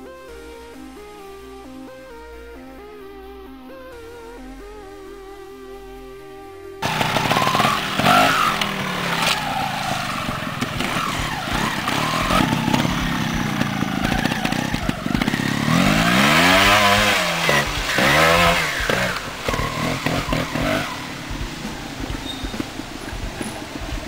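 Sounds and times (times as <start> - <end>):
motorcycle engine revving: 6.8 - 24.0.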